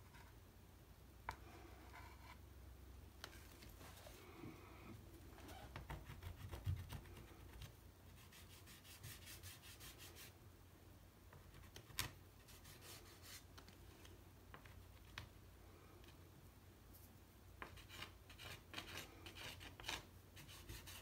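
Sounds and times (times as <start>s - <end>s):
pastel scratching on paper: 5.5s - 10.3s, 17.6s - 21.0s.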